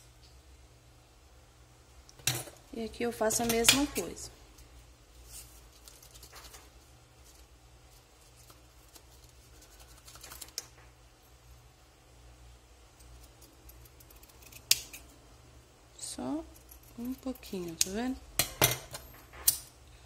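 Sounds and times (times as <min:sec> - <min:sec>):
ribbon rustling: 0:04.0 - 0:10.7.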